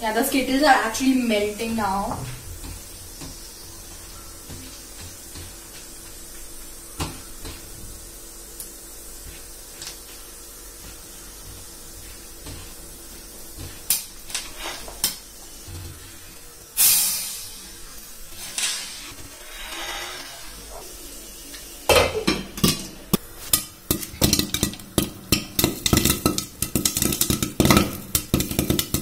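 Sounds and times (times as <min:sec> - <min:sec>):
loud hiss: 0:00.0 - 0:22.3
food frying in oil: 0:00.0 - 0:29.0.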